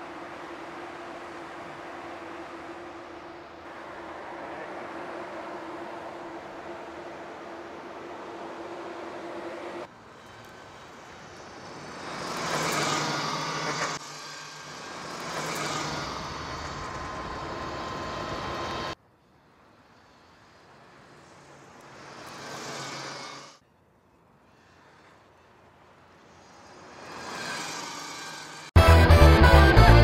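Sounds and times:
electric motor whine: 10.4s - 19.0s.

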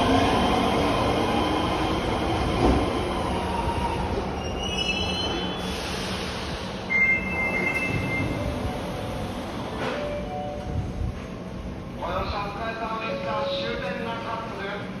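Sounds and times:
subway train rumble: 0.0s - 15.0s
wheel and brake squeals: 4.4s - 5.8s.

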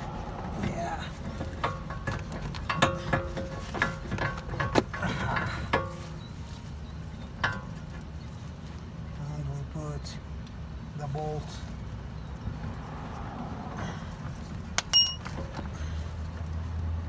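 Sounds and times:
metal clinks and taps: 14.8s - 15.5s.

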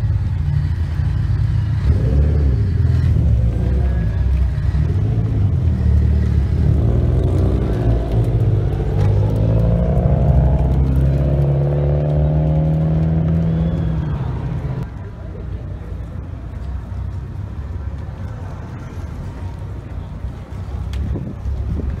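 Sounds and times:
car engines rumbling: 0.0s - 22.0s
car accelerating away: 1.7s - 14.9s.

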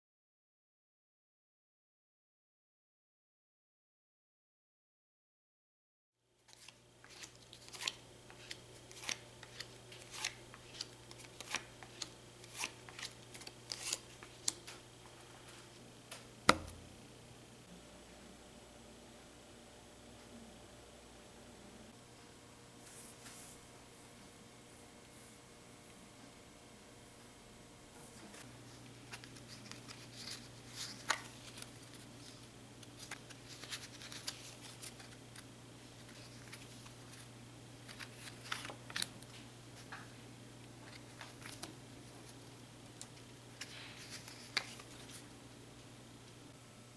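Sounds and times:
playing cards snapping and slapping: 16.5s - 16.8s.

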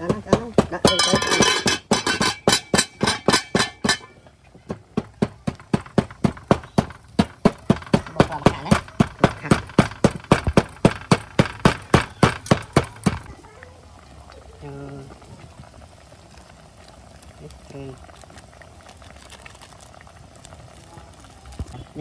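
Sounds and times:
wooden pestle pounding seeds: 0.0s - 4.1s, 4.7s - 13.3s.

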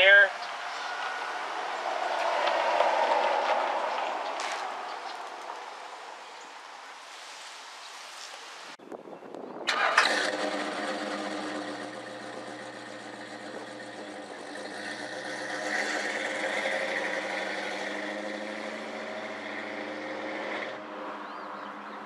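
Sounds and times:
car engine and exhaust rumbling: 9.7s - 22.0s.

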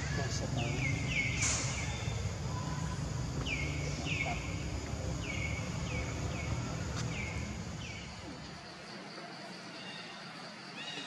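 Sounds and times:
bird chirping: 0.0s - 8.6s
low outdoor rumble: 0.0s - 8.9s.

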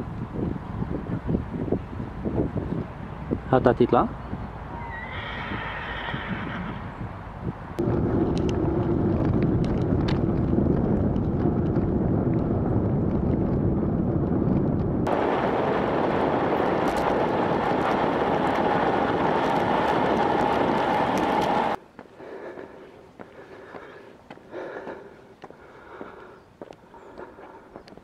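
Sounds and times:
wind on microphone: 0.0s - 21.8s
scooter wheels rolling: 7.8s - 13.8s, 14.4s - 21.8s.

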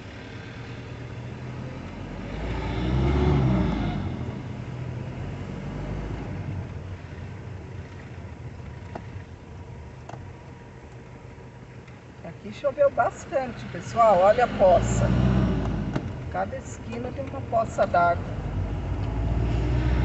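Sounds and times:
vehicle engine and road noise: 0.0s - 20.0s
vehicle passing close by: 0.3s - 6.7s, 13.5s - 16.3s, 18.1s - 20.0s.

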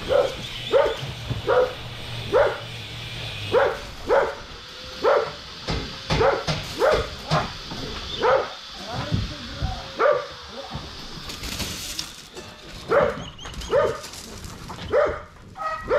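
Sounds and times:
dog barking: 0.0s - 2.7s, 3.5s - 5.4s, 6.1s - 7.4s, 8.2s - 8.6s, 10.0s - 10.4s, 12.9s - 14.0s, 14.9s - 15.9s.

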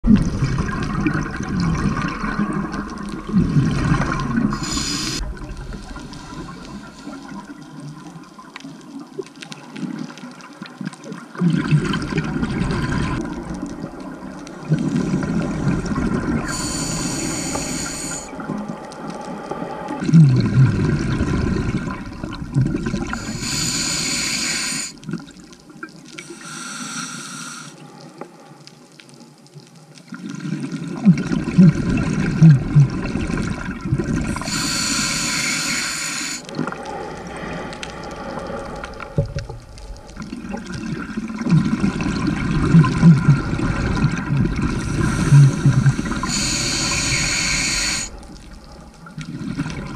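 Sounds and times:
exhaled bubbles underwater: 0.0s - 28.2s, 30.0s - 49.9s
hissing regulator inhalation: 4.4s - 7.4s, 16.4s - 18.3s, 23.0s - 25.0s, 26.2s - 27.8s, 34.2s - 39.1s, 44.7s - 48.2s.

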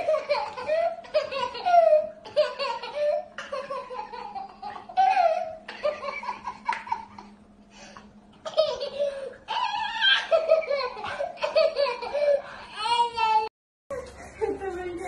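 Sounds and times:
baby laughing: 0.0s - 7.3s, 8.4s - 13.4s.

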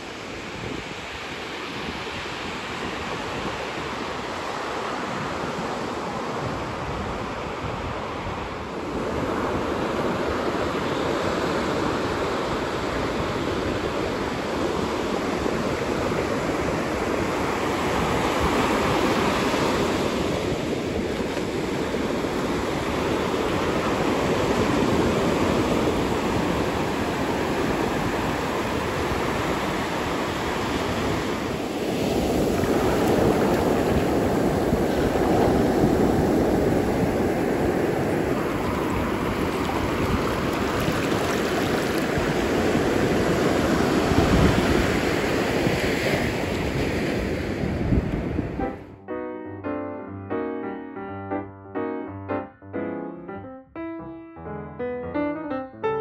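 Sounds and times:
ocean surf breaking on beach: 0.0s - 48.9s.

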